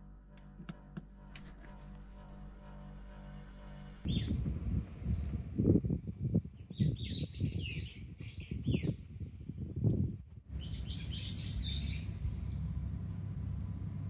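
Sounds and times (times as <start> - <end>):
low rushing noise: 1.5 - 6.6, 10.5 - 14.0
songbird singing: 4.1 - 5.5, 6.4 - 9.9, 10.5 - 12.8.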